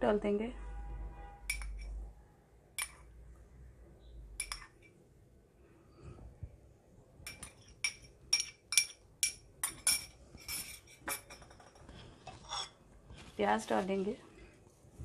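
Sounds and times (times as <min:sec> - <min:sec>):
metal spoon clinking against bowl: 0:01.5 - 0:02.0, 0:02.8 - 0:03.1, 0:04.4 - 0:04.9, 0:07.2 - 0:11.8.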